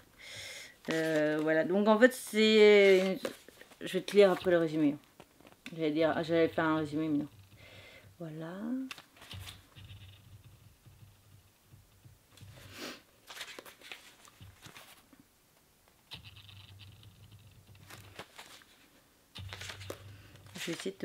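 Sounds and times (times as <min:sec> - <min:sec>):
pages turning with paper rustles: 0:00.8 - 0:05.9, 0:08.8 - 0:09.9, 0:12.4 - 0:15.1, 0:17.0 - 0:21.0.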